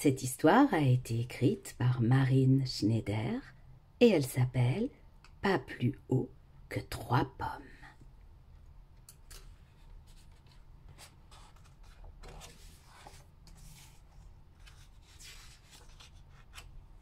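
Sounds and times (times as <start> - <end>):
book pages turning: 9.3 - 17.0.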